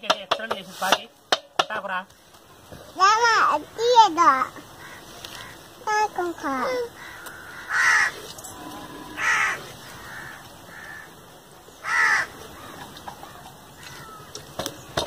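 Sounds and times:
crow cawing: 0:04.8 - 0:05.7, 0:06.9 - 0:11.2, 0:11.8 - 0:12.9, 0:13.8 - 0:14.3.

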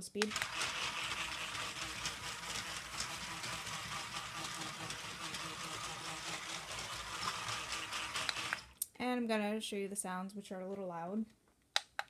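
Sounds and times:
toy train motor whirring: 0:00.1 - 0:08.8
wheels rattling over track: 0:00.3 - 0:08.7.

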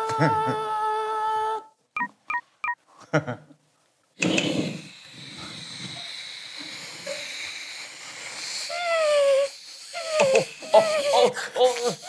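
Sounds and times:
man imitating dental drill whine: 0:04.2 - 0:12.0.

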